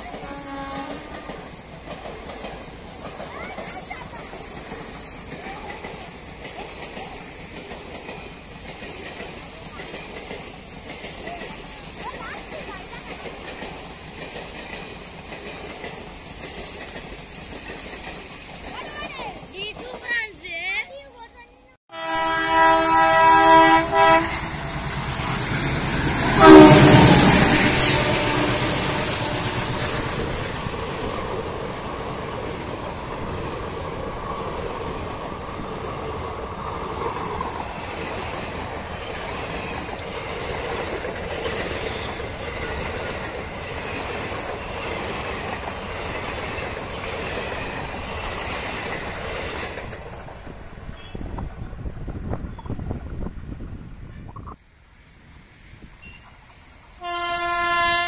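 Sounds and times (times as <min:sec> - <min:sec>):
train coaches rumbling by: 0:00.0 - 0:58.0
train horn blasts: 0:00.2 - 0:01.2, 0:21.9 - 0:25.0, 0:26.2 - 0:30.1, 0:57.0 - 0:58.0.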